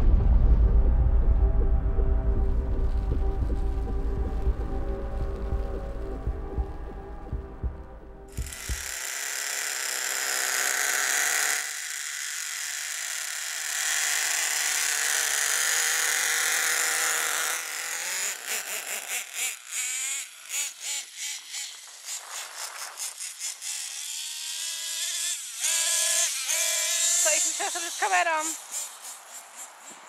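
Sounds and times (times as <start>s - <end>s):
rc truck engines buzzing and revving: 8.3s - 30.0s.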